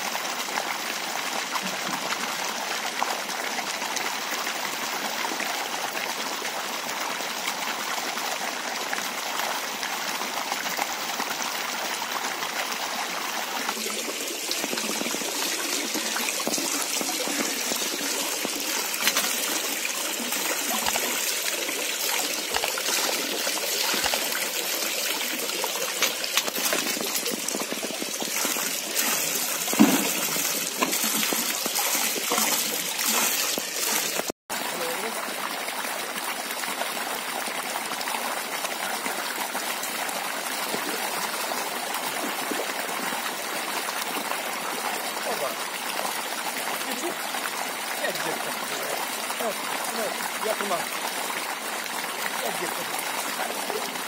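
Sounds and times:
pipe pouring water into pond: 0.0s - 54.0s
hose water trickling into tray: 13.5s - 35.1s.

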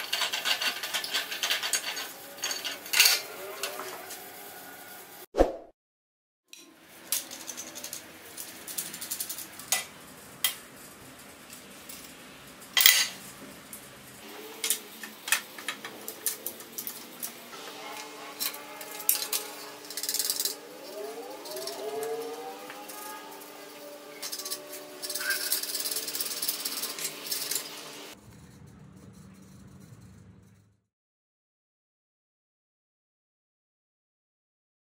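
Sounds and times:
rising tones: 17.5s - 28.2s
steady low hum: 27.7s - 30.8s.

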